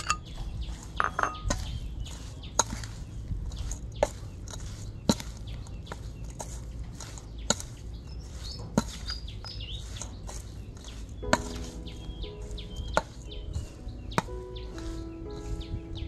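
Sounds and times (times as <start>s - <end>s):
small birds chirping: 0.0s - 16.0s
steady low rumble: 0.0s - 16.0s.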